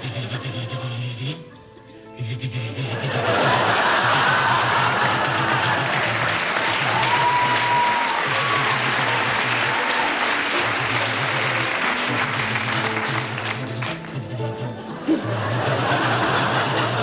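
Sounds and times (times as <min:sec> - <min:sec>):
music playing: 0:00.0 - 0:17.0
audience applauding: 0:03.2 - 0:14.5.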